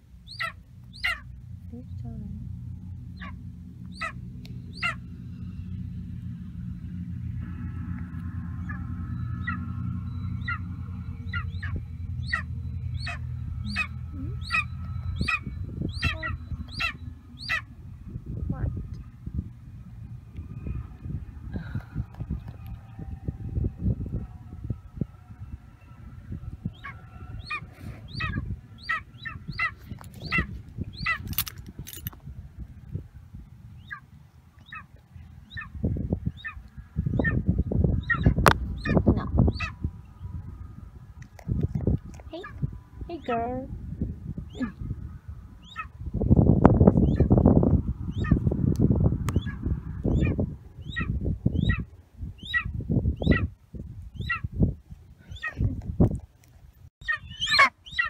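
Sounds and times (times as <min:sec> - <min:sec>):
low rumble: 0:00.0 - 0:58.0
eagle calling: 0:00.2 - 0:01.4, 0:03.1 - 0:05.5, 0:08.5 - 0:17.8, 0:26.8 - 0:31.5, 0:33.8 - 0:39.8, 0:44.4 - 0:44.8, 0:45.6 - 0:46.0, 0:49.3 - 0:53.5, 0:57.0 - 0:58.0.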